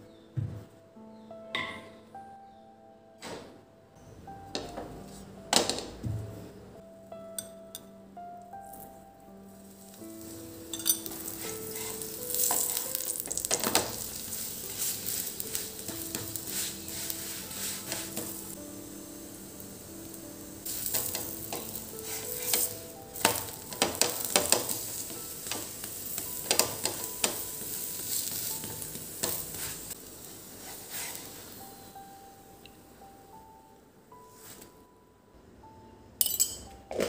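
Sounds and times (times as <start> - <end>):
flatbread sizzling on a griddle: 9.5 - 32.0
wooden spatula scraping: 11.1 - 18.4, 22.0 - 22.7, 30.6 - 31.3.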